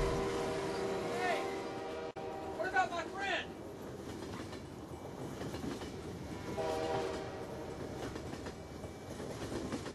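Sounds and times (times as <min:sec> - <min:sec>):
train horn: 0:00.0 - 0:02.8, 0:06.5 - 0:08.0
train passing rumble: 0:00.0 - 0:09.9.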